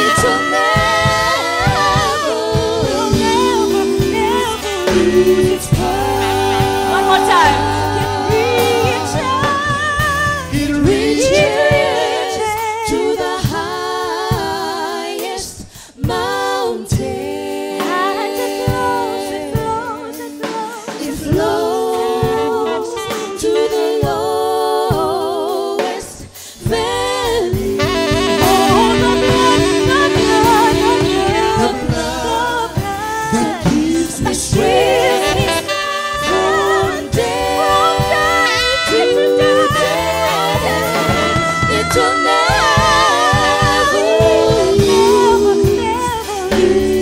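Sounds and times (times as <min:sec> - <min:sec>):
vocal group singing in harmony: 0:00.0 - 0:47.0
low instrumental backing: 0:27.5 - 0:47.0.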